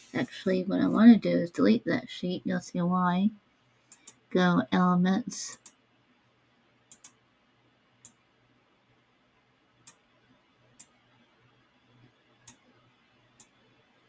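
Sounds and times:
computer mouse clicking: 3.9 - 4.2, 5.5 - 5.8, 6.9 - 7.2, 9.8 - 10.0, 10.7 - 11.0, 12.4 - 12.7, 13.4 - 13.6.

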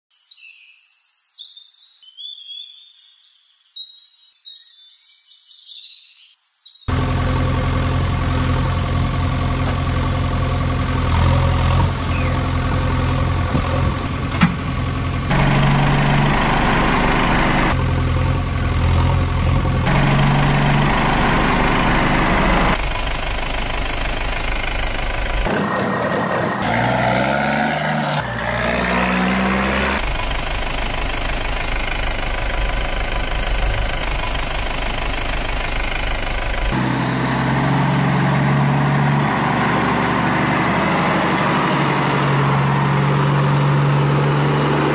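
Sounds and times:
heavy vehicle engine idling: 6.9 - 27.2, 30.0 - 44.9.

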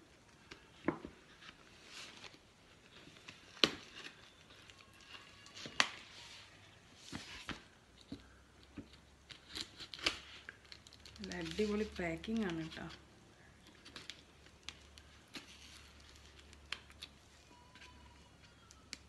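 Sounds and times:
plastic packaging crinkling: 8.6 - 19.0.

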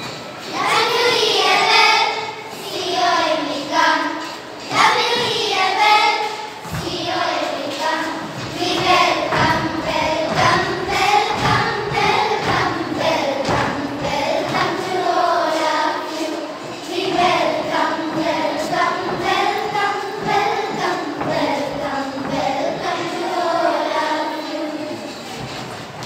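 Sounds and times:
girls singing in chorus: 0.0 - 25.8
dancing feet on wooden floor: 6.6 - 15.9, 17.0 - 23.0.

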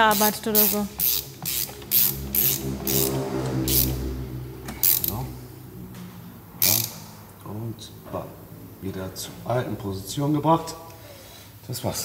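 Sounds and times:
ratchet wrench clicking: 0.1 - 4.0, 4.8 - 5.2, 6.6 - 7.1.

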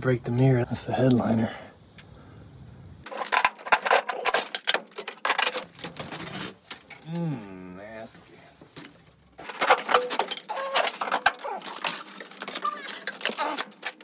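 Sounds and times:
headliner crackling and ripping: 5.6 - 7.0, 8.7 - 14.0
short wordless voice: 7.0 - 8.6.

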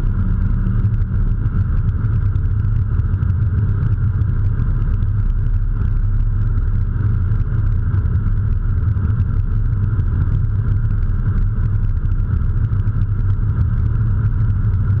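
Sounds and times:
car cabin engine and tyre rumble: 0.0 - 15.0.

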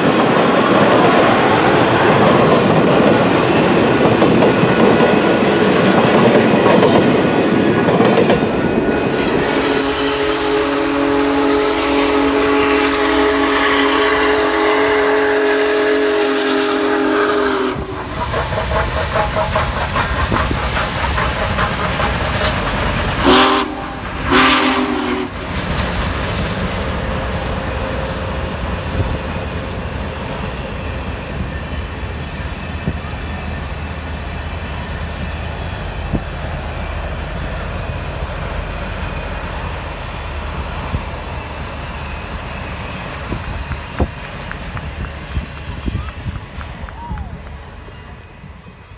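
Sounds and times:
train rumbling and clattering: 0.0 - 48.9
train whistle: 8.6 - 20.6, 21.2 - 25.5, 39.1 - 48.9.

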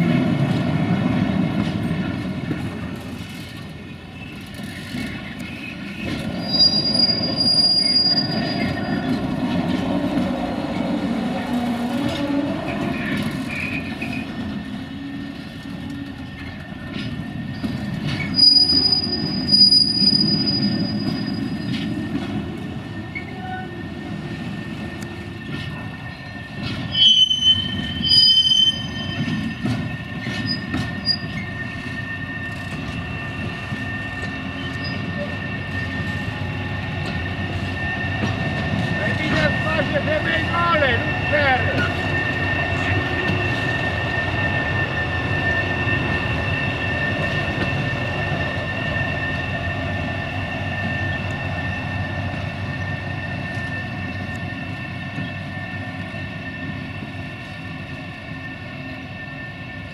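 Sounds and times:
locomotive and wagons rumbling: 0.0 - 50.1
wheel squeals: 3.1 - 9.3, 10.7 - 59.9.

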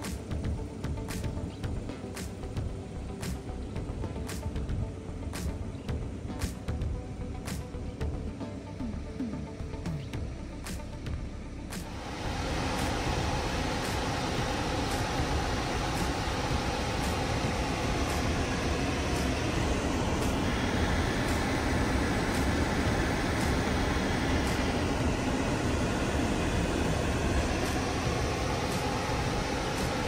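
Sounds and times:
rush of noise: 11.8 - 30.0.

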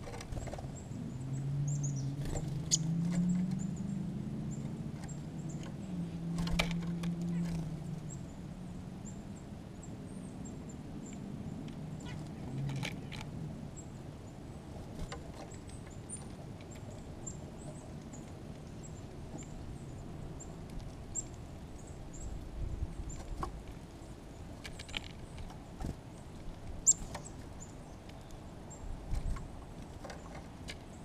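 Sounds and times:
birds pecking on feeder tray: 0.0 - 0.8, 29.0 - 31.0
small birds chipping: 0.0 - 31.0.

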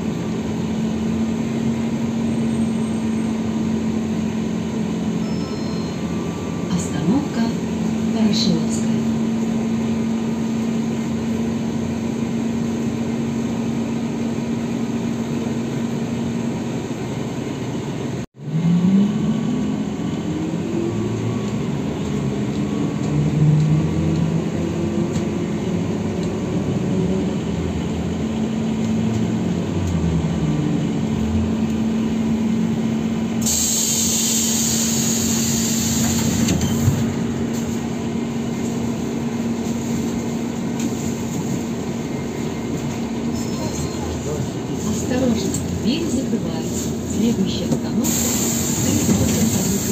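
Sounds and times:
hiss: 33.4 - 36.3, 48.0 - 49.9.

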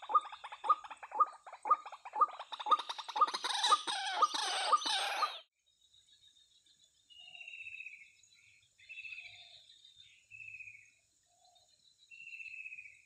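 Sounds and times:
waterhen harsh pulsed calls: 0.0 - 5.4.

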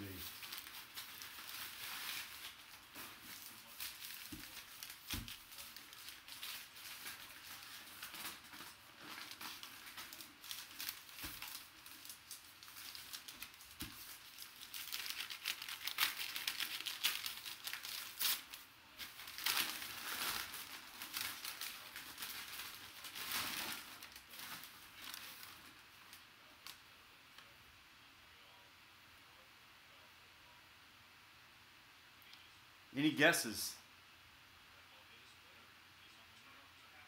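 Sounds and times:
packing paper crinkling and tearing: 0.0 - 26.8.

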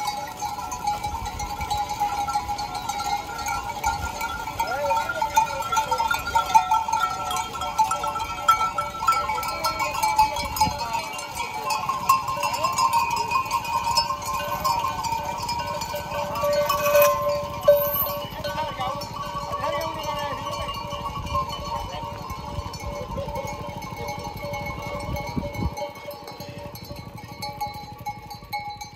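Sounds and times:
animal bells clanking: 0.0 - 28.9
hooves on gravel: 11.0 - 18.5.

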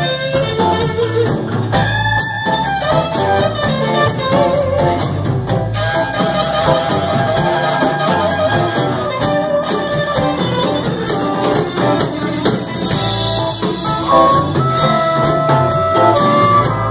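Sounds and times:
blues band playing: 0.0 - 16.9
cymbal beat: 12.7 - 16.9
held wavering guitar note: 13.5 - 16.9.

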